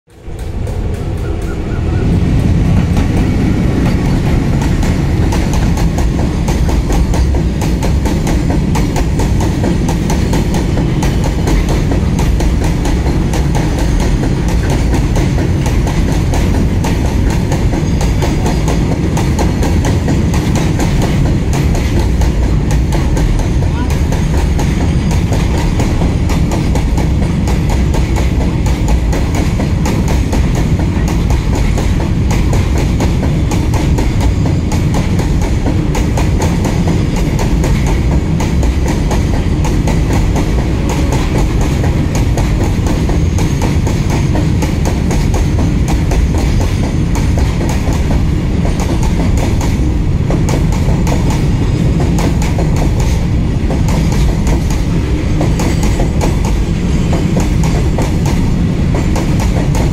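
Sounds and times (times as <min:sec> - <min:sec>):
freight train wagons rumbling: 0:00.1 - 0:59.9.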